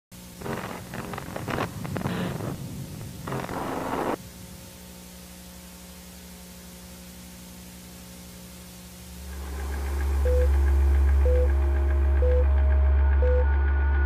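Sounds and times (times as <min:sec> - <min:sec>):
static hiss: 0:00.2 - 0:11.1
low electronic hum: 0:00.2 - 0:14.0
deep bass drone: 0:00.4 - 0:14.0
eerie ambient electronic music: 0:09.2 - 0:14.0
short beeps: 0:10.2 - 0:10.5, 0:11.2 - 0:11.5, 0:12.2 - 0:12.5, 0:13.2 - 0:13.5.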